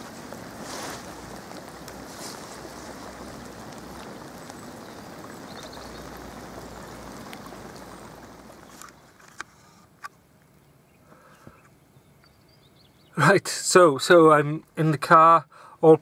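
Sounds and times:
faint ticks of drops: 0.0 - 9.1
heavy rain on lake water: 0.0 - 11.4.

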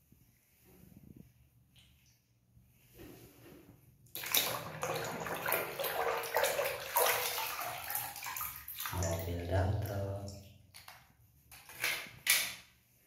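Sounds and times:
water splashing in a basin: 4.1 - 12.3.

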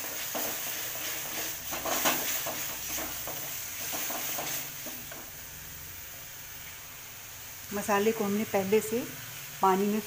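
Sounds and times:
wooden spatula scraping metal pan: 0.0 - 5.3
paste sizzling in oil: 0.0 - 10.0.

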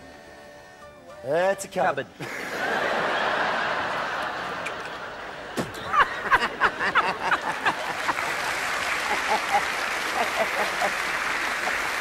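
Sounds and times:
man laughing loudly: 2.2 - 4.0, 5.6 - 8.4, 9.1 - 11.1
audience laughing: 2.2 - 12.0.

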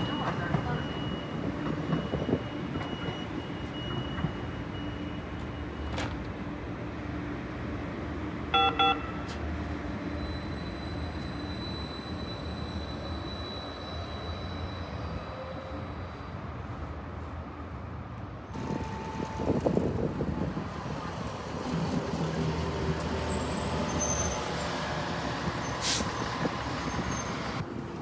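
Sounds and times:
train double warning tone: 0.0 - 6.2, 8.5 - 9.3, 18.6 - 20.4
train cars rumbling: 0.0 - 7.0, 9.4 - 28.0.

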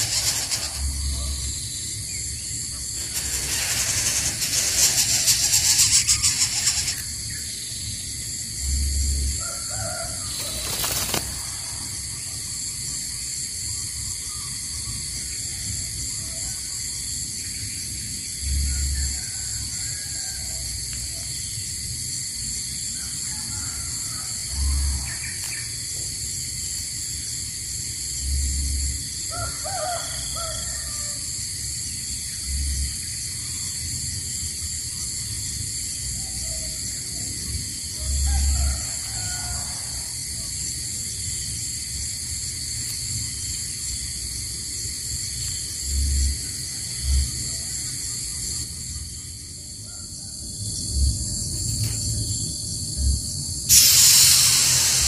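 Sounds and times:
short burst of noise: 0.0 - 1.5, 2.9 - 7.2, 53.7 - 55.0
loud rasping hiss: 0.0 - 8.0, 53.7 - 55.0
high-pitched insect drone: 0.0 - 55.0.

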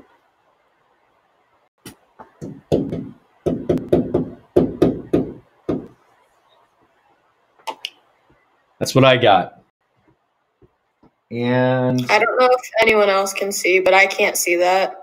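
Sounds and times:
marker knocking on a board: 2.2 - 6.0.

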